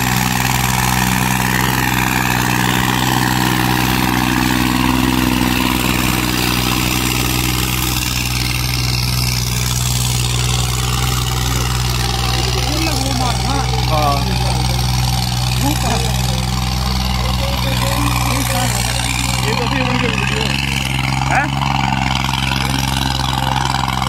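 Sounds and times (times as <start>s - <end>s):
tractor diesel engine running: 0.0s - 24.0s.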